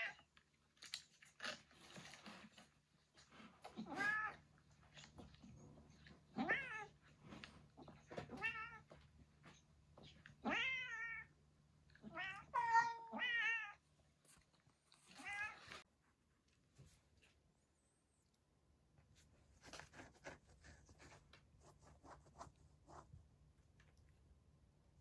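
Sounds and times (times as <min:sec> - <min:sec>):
cat meowing: 0:03.8 - 0:04.4, 0:06.4 - 0:06.9, 0:10.4 - 0:11.3, 0:12.0 - 0:13.8.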